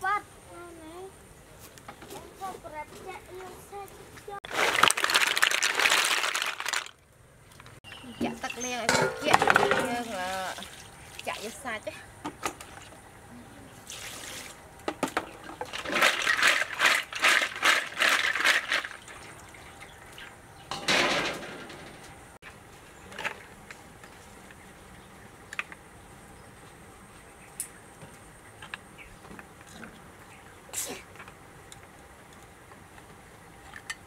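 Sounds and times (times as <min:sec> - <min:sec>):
water splashing and sloshing: 0:04.2 - 0:06.9, 0:07.5 - 0:13.1, 0:13.8 - 0:22.4
water pouring from a scoop: 0:04.5 - 0:06.8, 0:13.9 - 0:14.6.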